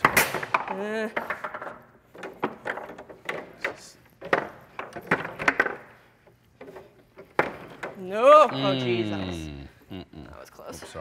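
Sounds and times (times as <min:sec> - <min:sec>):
foosball ball clacking: 0:00.0 - 0:06.0, 0:06.6 - 0:08.6.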